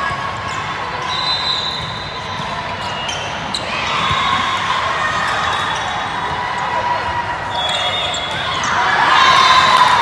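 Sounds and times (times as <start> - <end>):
voices of players and spectators: 0.0 - 10.0
sneakers squeaking on court: 1.6 - 4.3.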